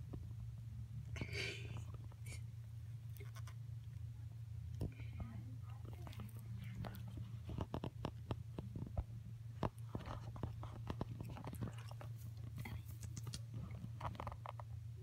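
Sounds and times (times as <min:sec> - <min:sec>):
cat chewing grass: 0:05.6 - 0:14.7.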